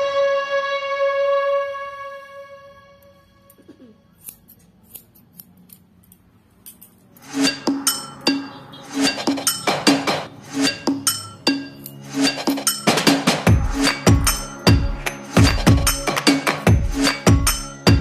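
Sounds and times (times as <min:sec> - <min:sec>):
music with sharp beat and plucked notes: 0:07.2 - 0:18.0.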